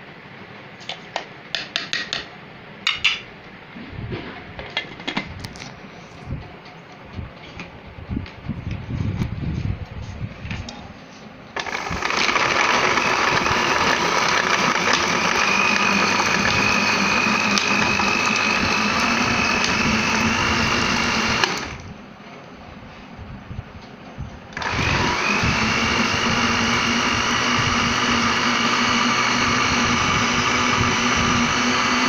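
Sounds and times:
electric blender running: 0:11.6 - 0:21.9, 0:24.6 - 0:32.0.

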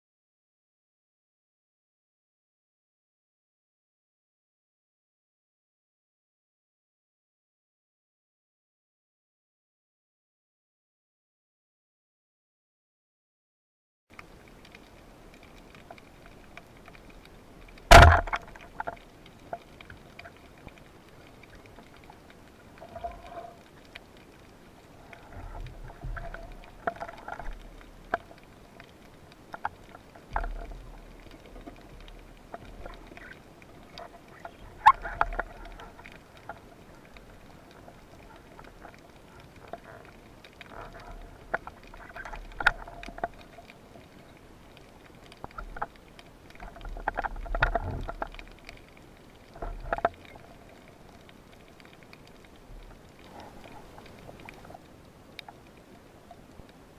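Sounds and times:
underwater knocks and clicks: 0:14.2 - 0:55.8
speargun firing crack underwater: 0:17.9 - 0:18.7.

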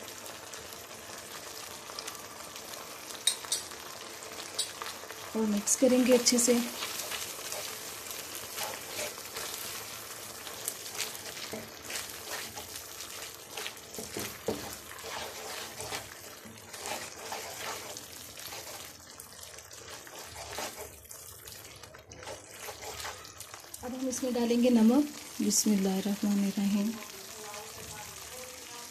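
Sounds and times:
sauce sizzling and bubbling in pan: 0:00.0 - 0:28.9
wooden spatula scraping pan: 0:05.9 - 0:18.9, 0:19.8 - 0:21.0, 0:22.1 - 0:23.4.

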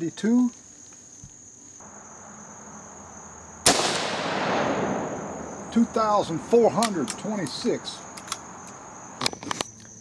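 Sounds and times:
crickets chirping: 0:00.0 - 0:10.0
rifle shot with echo: 0:03.6 - 0:05.7.

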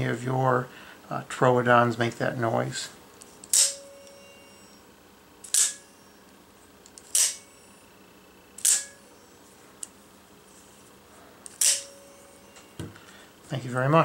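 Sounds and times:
spring twang: 0:05.4 - 0:06.0, 0:08.6 - 0:09.1.

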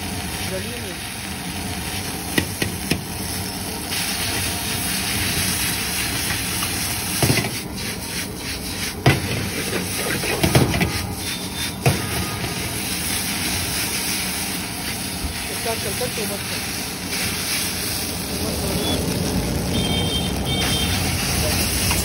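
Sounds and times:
gas flame hiss: 0:00.0 - 0:19.6
noodles sizzling in a wok: 0:00.0 - 0:22.0
metal ladle scraping a wok: 0:07.4 - 0:13.5.

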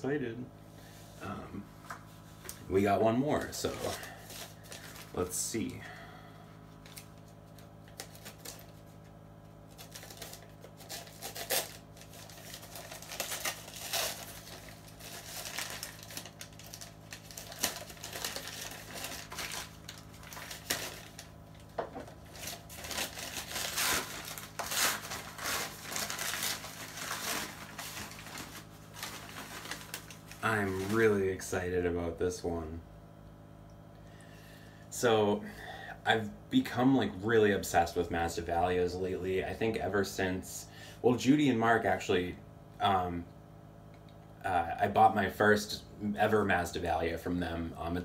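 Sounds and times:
faint low hum: 0:00.0 - 0:48.0
packaging crinkling and tearing: 0:03.3 - 0:05.3, 0:06.8 - 0:31.2.

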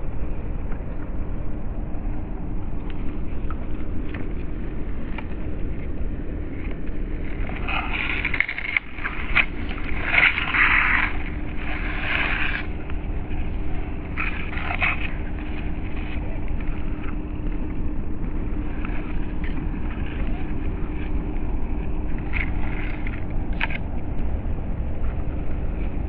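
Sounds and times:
tyres scraping through grass: 0:06.5 - 0:23.9.

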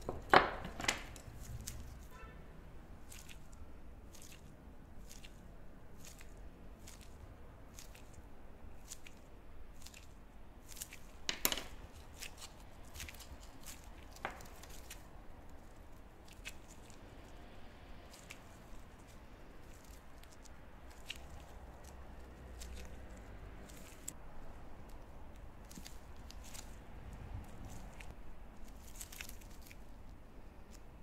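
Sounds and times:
soft clicks and rustles of hands: 0:03.0 - 0:05.4, 0:08.8 - 0:31.0.

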